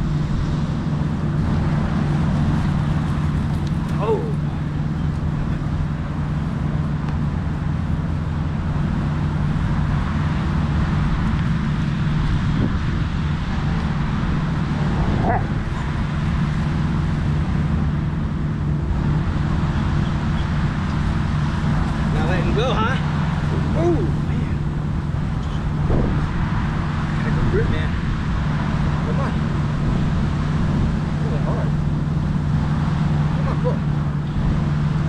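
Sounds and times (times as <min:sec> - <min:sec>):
low rumble of road traffic: 0:00.0 - 0:35.0
dog vocal sounds: 0:03.8 - 0:04.6, 0:15.0 - 0:16.0, 0:23.6 - 0:24.3, 0:33.3 - 0:33.9.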